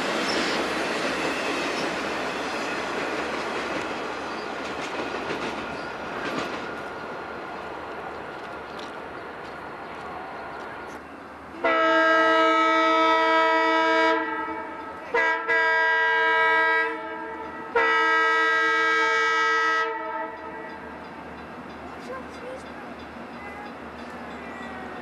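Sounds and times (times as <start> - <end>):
moving train noise: 0.0 - 25.0
locomotive air horn: 11.6 - 20.6.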